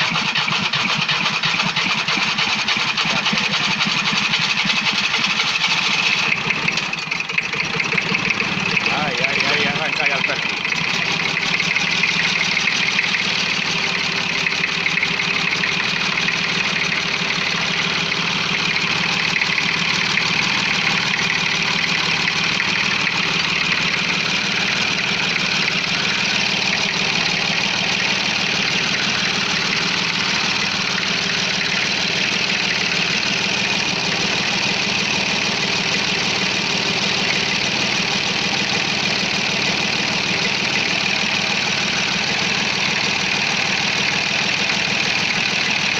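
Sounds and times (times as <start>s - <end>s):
diesel engine idling: 0.0s - 45.9s.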